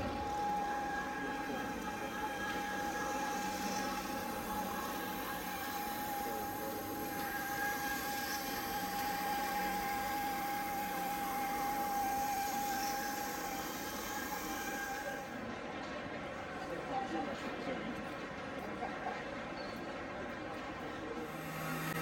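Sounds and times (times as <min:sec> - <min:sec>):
constant high-pitched whine: 0:00.0 - 0:16.0, 0:20.6 - 0:22.0
exhibition hall background noise: 0:00.0 - 0:22.0.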